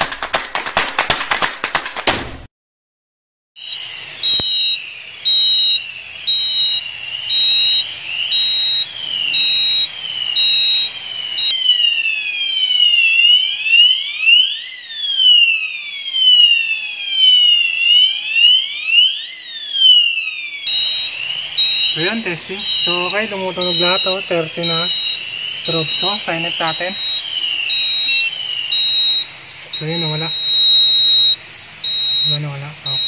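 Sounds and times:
pulsing high beep: 3.6 - 11.6, 20.7 - 33.0
fire alarm sweeping tone: 3.6 - 33.0.

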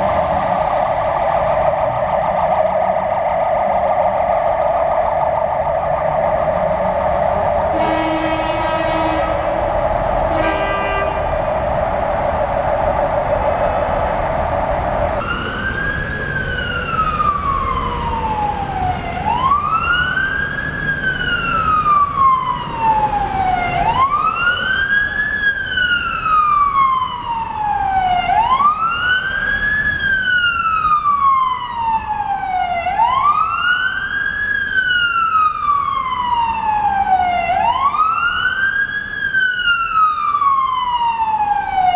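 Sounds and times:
steady rushing noise: 0.0 - 17.6
fire engine siren wailing: 0.0 - 41.9.

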